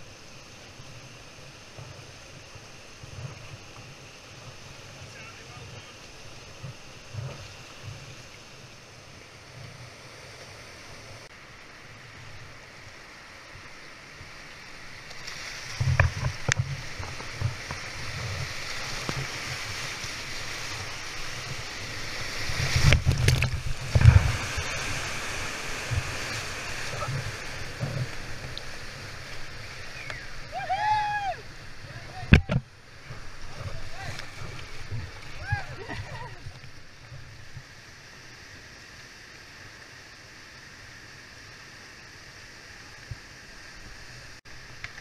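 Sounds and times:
rushing whitewater: 0.0s - 45.0s
water splashing against boat: 14.3s - 37.8s
wind buffeting microphone: 20.8s - 30.5s.

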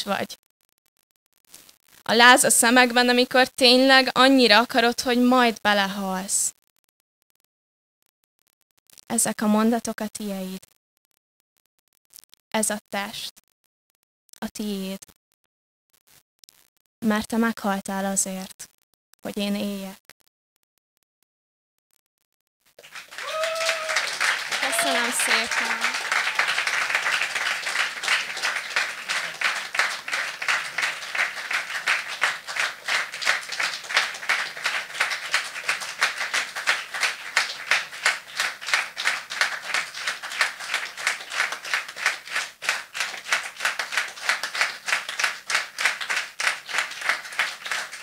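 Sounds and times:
audience applause: 22.8s - 48.0s
rhythmic clapping in unison: 22.8s - 48.0s.

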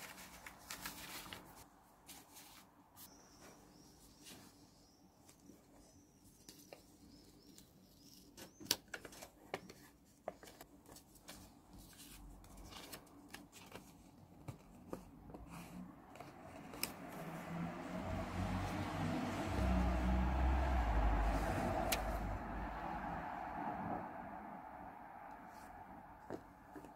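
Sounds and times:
paper clicks taps and rustles: 7.5s - 17.2s.

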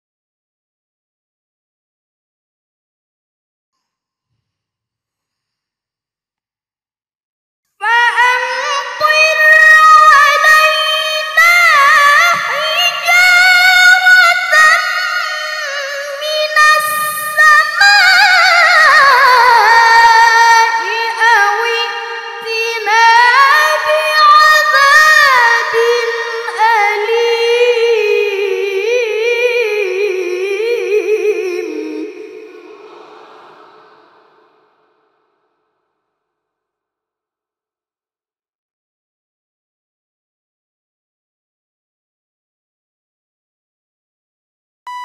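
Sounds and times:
boy reciting melodically: 7.8s - 32.8s.

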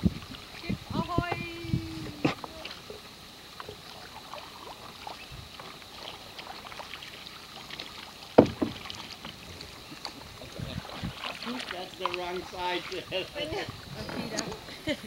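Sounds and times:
paddle strokes in water: 0.0s - 15.0s
small clicks and drips: 2.4s - 10.6s
sharp knock: 8.4s - 8.8s.

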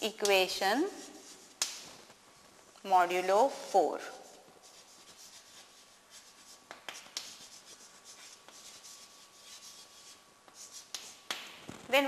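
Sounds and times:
chalk scratching on a blackboard: 0.8s - 1.8s, 4.0s - 11.4s
chalk tapping on a board: 4.6s - 11.5s.

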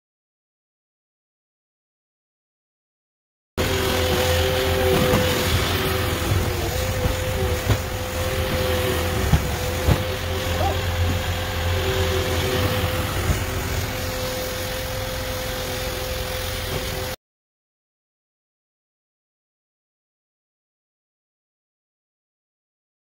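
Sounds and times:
diesel engine running: 3.6s - 17.2s
engine whine: 3.6s - 17.2s.

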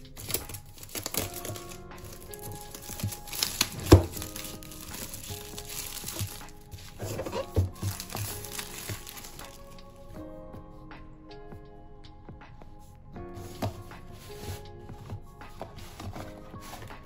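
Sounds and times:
plastic shrink wrap crinkling: 0.0s - 10.1s
background music: 0.0s - 17.0s.

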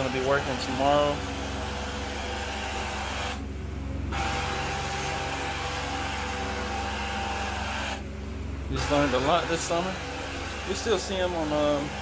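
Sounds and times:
extraction wand rushing hiss: 0.0s - 3.5s, 4.1s - 8.1s
vacuum extractor humming: 0.0s - 12.0s.

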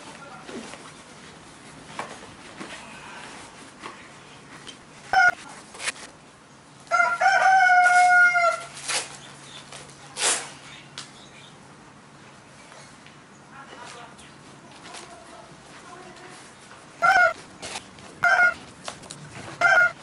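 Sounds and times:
rooster crowing: 5.2s - 5.4s, 6.9s - 8.7s, 17.0s - 17.4s, 18.2s - 18.6s, 19.6s - 20.0s.

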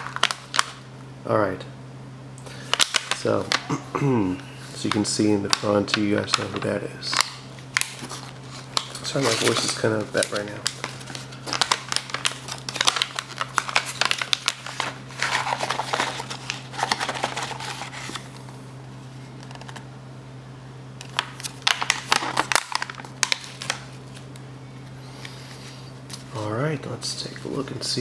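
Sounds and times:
foil wrapper crinkling: 0.0s - 0.8s, 2.5s - 3.5s, 7.1s - 18.4s, 21.0s - 24.4s.

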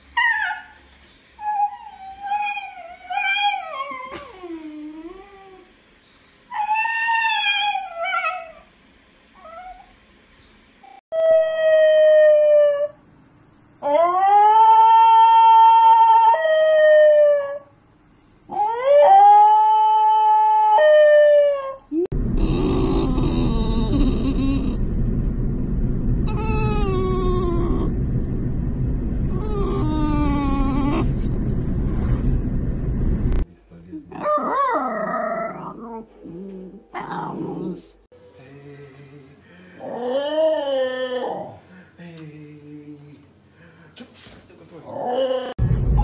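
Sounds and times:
low steady drone: 22.1s - 33.8s, 45.6s - 46.0s
dog growling: 22.3s - 24.8s, 34.1s - 37.9s
dog yodel-howling: 26.3s - 27.9s, 39.8s - 41.6s.

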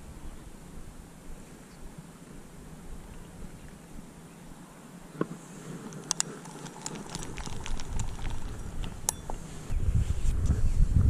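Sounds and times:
wind buffeting microphone: 6.7s - 11.0s.

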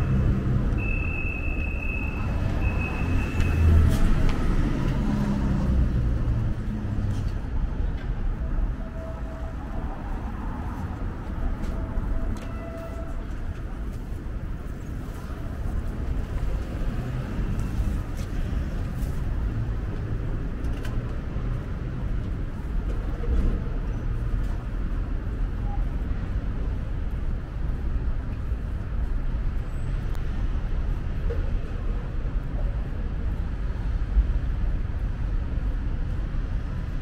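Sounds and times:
road traffic rumble: 0.0s - 37.0s.

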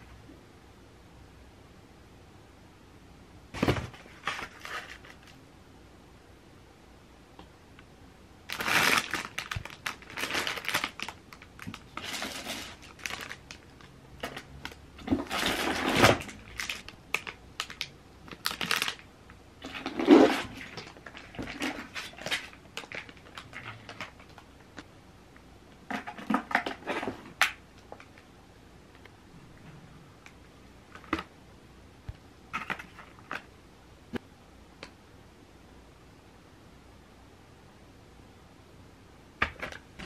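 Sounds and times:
plastic packaging rustling: 3.6s - 5.4s, 8.5s - 24.5s.

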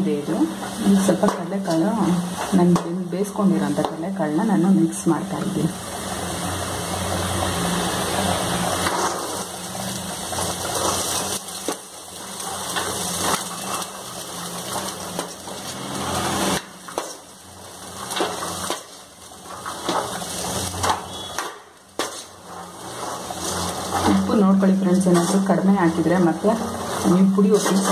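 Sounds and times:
chickpeas rattling in pan: 7.0s - 27.9s
ladle scraping metal pan: 22.0s - 27.9s.

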